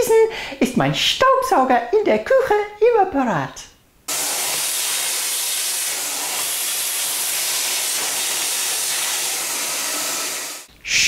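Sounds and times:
vacuum cleaner running: 0:04.1 - 0:10.7.

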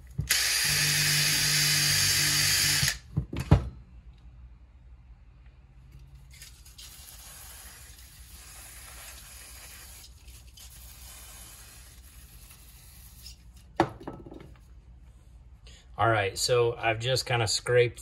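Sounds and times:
aerosol can spraying: 0:06.8 - 0:10.2, 0:10.8 - 0:12.9.

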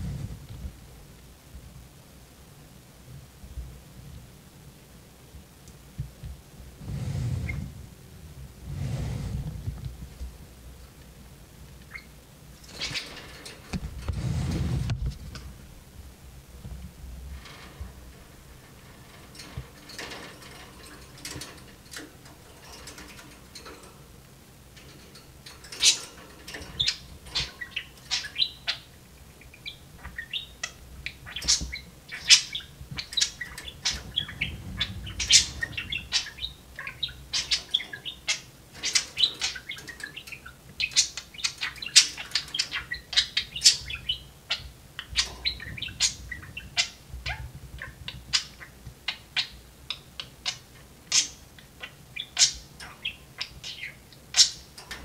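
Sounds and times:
budgerigars chattering: 0:25.7 - 0:54.8.

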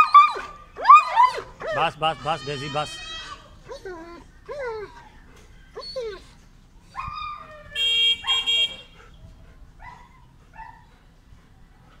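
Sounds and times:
dog whimpering: 0:00.0 - 0:05.2
horn blasts: 0:07.8 - 0:09.0.

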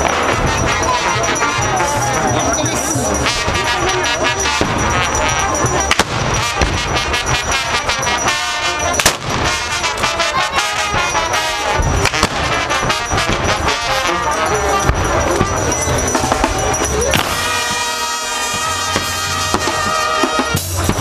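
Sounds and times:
brass band playing: 0:00.0 - 0:21.0
loud crowd: 0:00.0 - 0:21.0
sharp cracks and bangs: 0:05.9 - 0:07.5, 0:09.0 - 0:10.1, 0:11.7 - 0:14.0.

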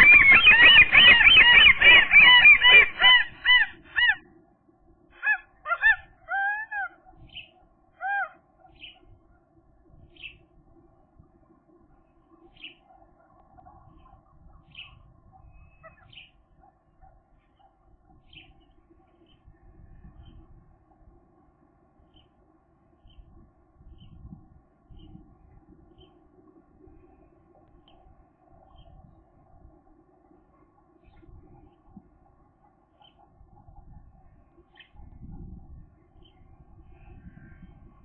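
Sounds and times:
gulls calling: 0:00.0 - 0:04.4, 0:05.1 - 0:09.5.

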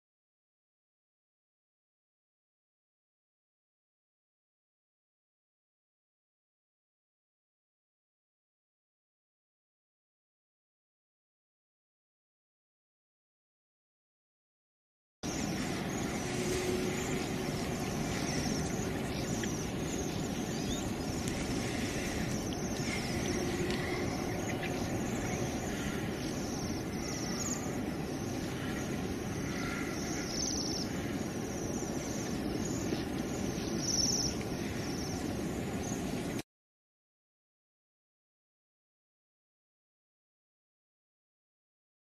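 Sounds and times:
faint high bird calls: 0:15.2 - 0:36.1
low outdoor rumble: 0:15.2 - 0:36.4.

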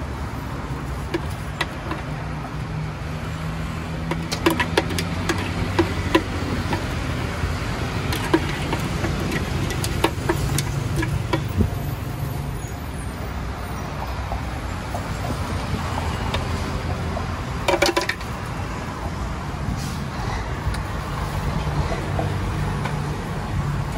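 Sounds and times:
road traffic rumble: 0:00.0 - 0:23.9
spoon knocking plastic jar: 0:04.1 - 0:07.0.

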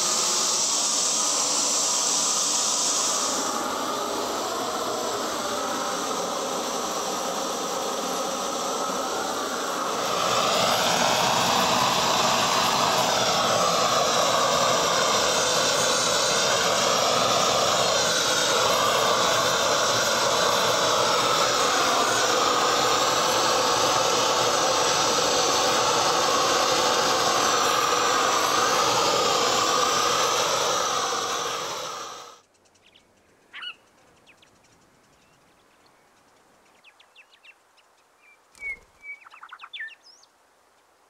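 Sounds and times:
propane torch burner rushing: 0:00.0 - 0:32.4.

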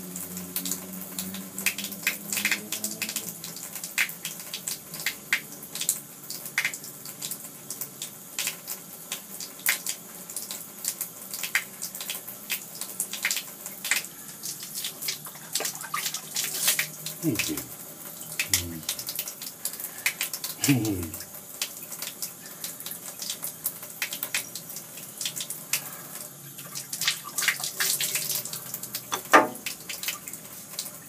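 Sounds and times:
tap water running into bathtub: 0:00.0 - 0:31.0
water splashes and spatters: 0:11.4 - 0:31.0.

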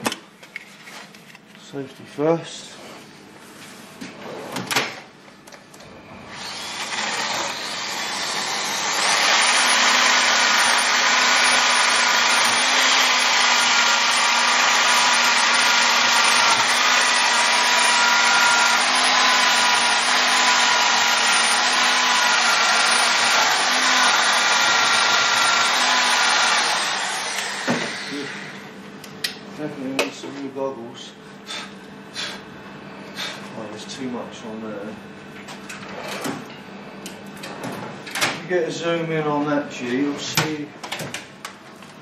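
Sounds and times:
power tool motor whine: 0:06.1 - 0:28.7.

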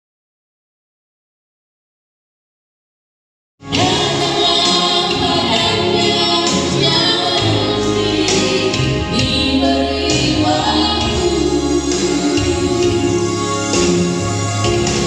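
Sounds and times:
choir singing gospel music: 0:03.6 - 0:15.0.

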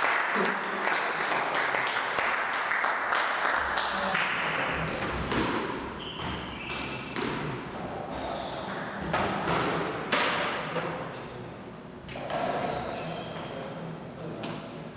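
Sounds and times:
squash ball thudding: 0:04.9 - 0:07.8
sharp racket hit: 0:05.2 - 0:05.8.

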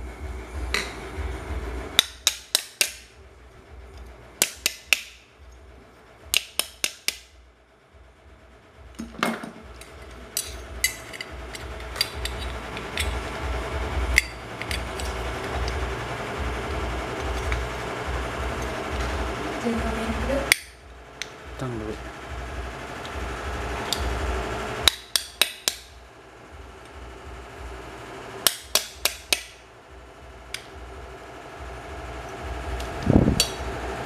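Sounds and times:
metal parts scraping: 0:09.0 - 0:13.2, 0:14.2 - 0:15.3.

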